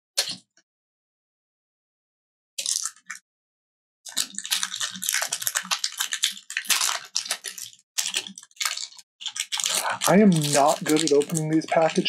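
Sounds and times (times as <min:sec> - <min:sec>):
foil wrapper crinkling and tearing: 0:02.6 - 0:03.2, 0:04.1 - 0:12.0.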